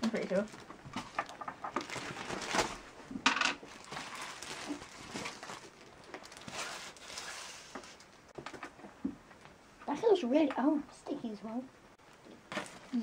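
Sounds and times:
plastic packaging crinkling: 0:00.3 - 0:02.9, 0:03.6 - 0:08.2.

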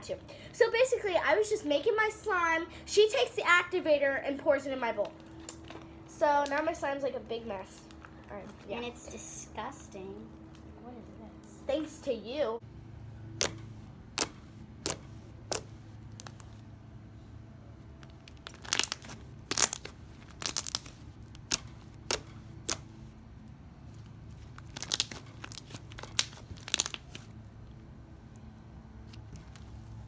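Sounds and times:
slime popping and crackling: 0:13.4 - 0:16.6, 0:18.0 - 0:23.0, 0:24.4 - 0:27.3.

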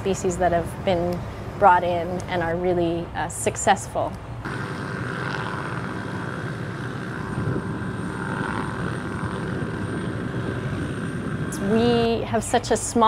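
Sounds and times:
helicopter engine and rotor: 0:04.4 - 0:12.7.

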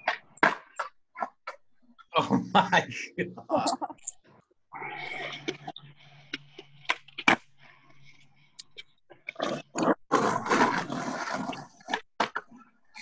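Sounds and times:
skateboard cracking on concrete: 0:09.8 - 0:12.5.

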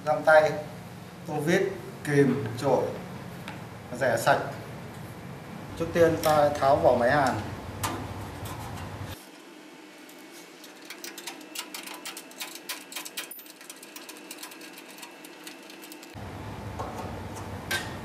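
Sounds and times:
light metal scraping: 0:07.8 - 0:09.2.

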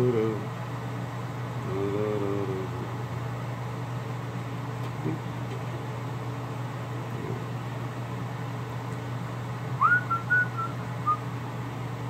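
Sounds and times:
steady low hum: 0:00.0 - 0:12.0
person whistling: 0:09.8 - 0:11.2.

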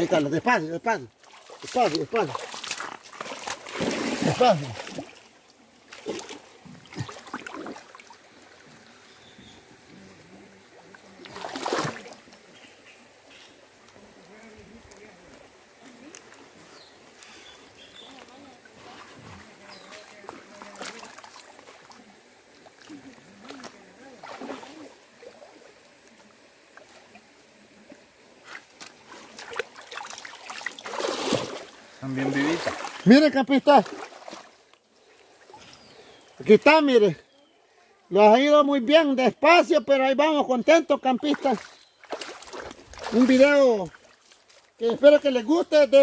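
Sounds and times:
stream trickling over rocks: 0:00.0 - 0:46.0
hands splashing in water: 0:01.2 - 0:08.2, 0:11.2 - 0:12.4, 0:22.7 - 0:24.9, 0:28.5 - 0:33.1, 0:41.3 - 0:44.4
net rustling on wet rocks: 0:29.0 - 0:31.8.

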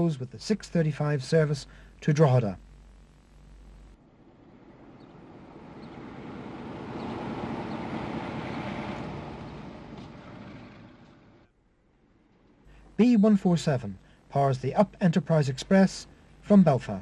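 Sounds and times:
diesel train passing: 0:04.1 - 0:11.5.

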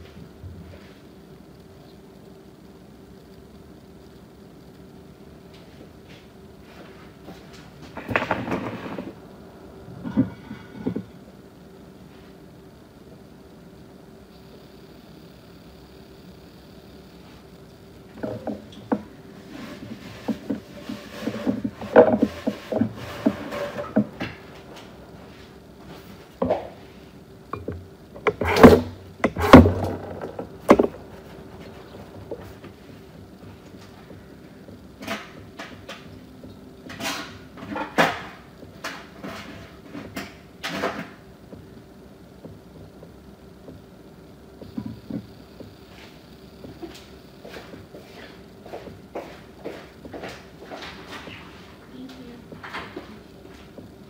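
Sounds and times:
faint steady hum: 0:00.0 - 0:54.0
knocks and clatter of handling: 0:07.4 - 0:09.2, 0:18.2 - 0:24.9, 0:27.5 - 0:32.8.

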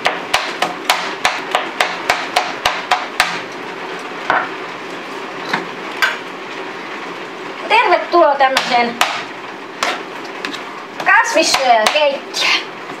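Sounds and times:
knife chopping on plastic board: 0:00.0 - 0:03.5, 0:08.6 - 0:10.0, 0:11.0 - 0:12.1.

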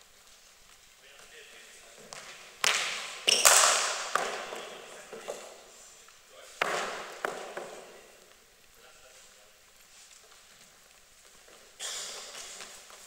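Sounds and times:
cricket balls knocking with echo: 0:06.6 - 0:07.9.

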